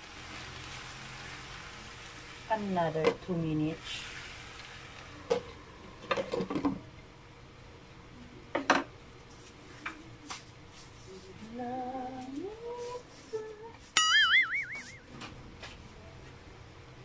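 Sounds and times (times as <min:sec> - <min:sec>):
food sizzling: 0:00.0 - 0:06.1
short rising tone: 0:14.0 - 0:15.1.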